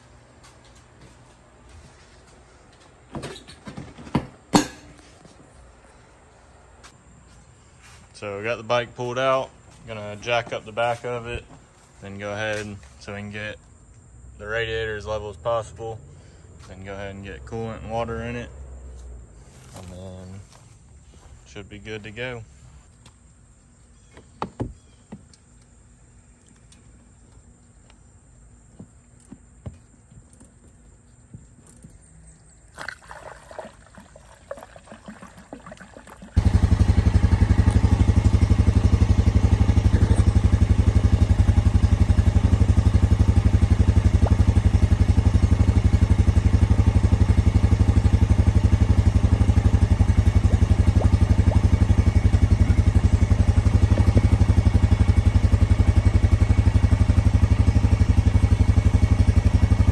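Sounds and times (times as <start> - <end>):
atv engine running: 36.4 - 59.9.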